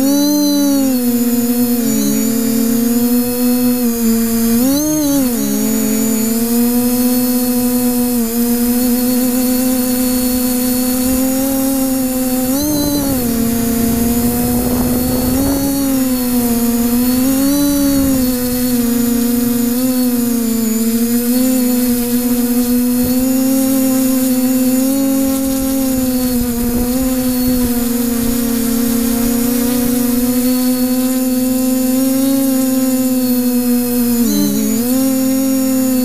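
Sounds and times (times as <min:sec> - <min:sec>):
drone motors humming: 0:00.0 - 0:36.0
wind rumble on microphone: 0:10.8 - 0:19.6, 0:25.2 - 0:30.3.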